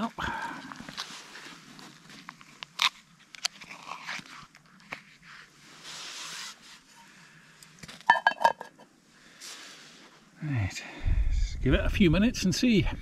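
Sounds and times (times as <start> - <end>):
food pouch rustling and crinkling: 0.7 - 5.2
metal lid clanking on pot: 8.1 - 8.8.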